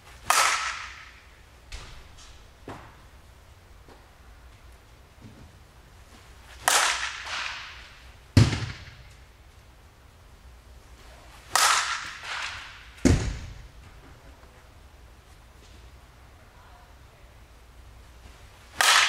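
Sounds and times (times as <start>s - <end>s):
bat striking softball: 0.2s - 3.0s, 6.6s - 9.2s, 11.5s - 13.6s, 18.7s - 19.0s.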